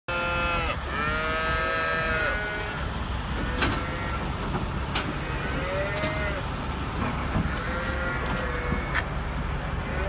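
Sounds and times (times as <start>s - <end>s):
cattle mooing: 0.1s - 2.9s, 3.5s - 4.2s, 5.2s - 6.4s, 7.5s - 9.0s
truck engine idling rumble: 0.2s - 10.0s.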